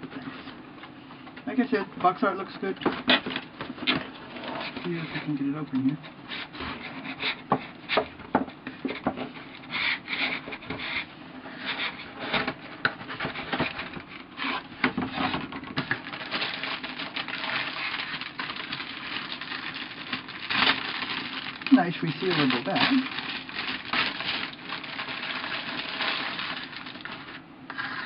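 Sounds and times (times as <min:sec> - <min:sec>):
plastic bag crinkling: 0:15.3 - 0:28.0
cardboard lid scraping on box: 0:27.0 - 0:28.0.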